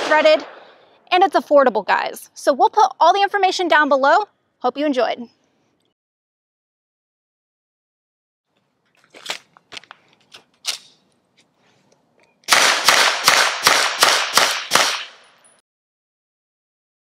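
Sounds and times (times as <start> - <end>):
suppressed pistol shots: 0.0 - 0.8, 12.5 - 15.4.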